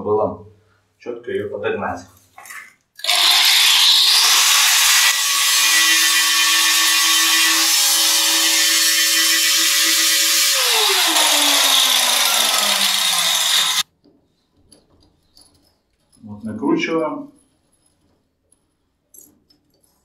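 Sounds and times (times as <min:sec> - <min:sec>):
angle grinder grinding metal: 0:03.0 - 0:13.8.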